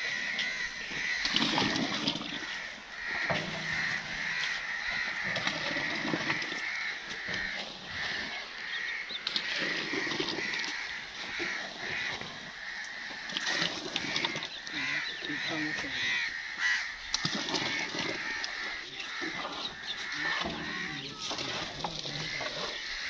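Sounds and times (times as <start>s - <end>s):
crows cawing: 0.0s - 23.0s.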